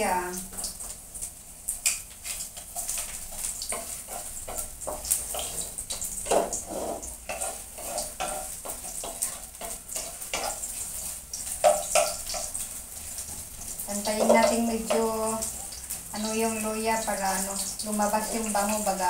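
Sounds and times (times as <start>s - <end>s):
ginger sizzling in hot oil: 0.0s - 19.0s
wooden spatula scraping a wok: 2.1s - 15.6s.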